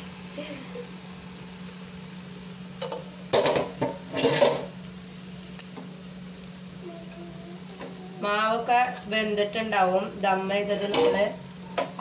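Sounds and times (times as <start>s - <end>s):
metal lid clanking and scraping: 2.8s - 4.7s, 10.8s - 12.0s.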